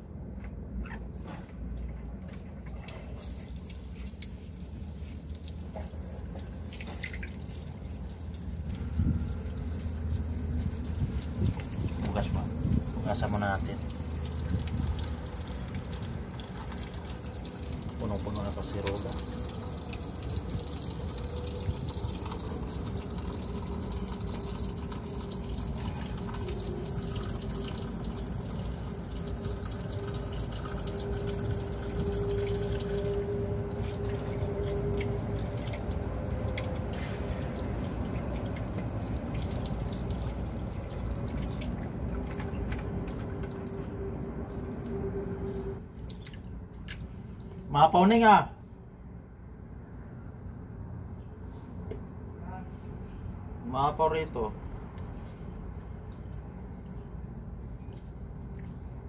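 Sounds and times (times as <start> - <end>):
water splashing: 1.3 - 44.3
water running from tap: 3.0 - 43.8.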